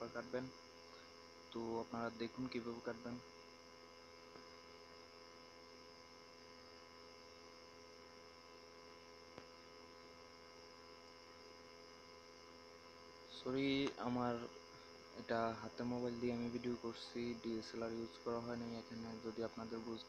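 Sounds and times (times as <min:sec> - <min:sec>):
low electrical hum: 0:00.0 - 0:20.0
faint click: 0:09.3 - 0:09.5.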